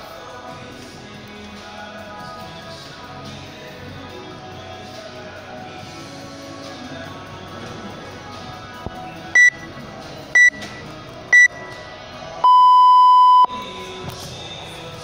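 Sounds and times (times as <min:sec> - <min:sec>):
background music: 0:00.0 - 0:15.0
long lower beep: 0:09.4 - 0:09.6, 0:10.4 - 0:10.6, 0:11.4 - 0:11.8, 0:12.4 - 0:13.9
short high beeps: 0:09.4 - 0:09.6, 0:10.4 - 0:10.8, 0:11.4 - 0:11.8, 0:12.4 - 0:13.9.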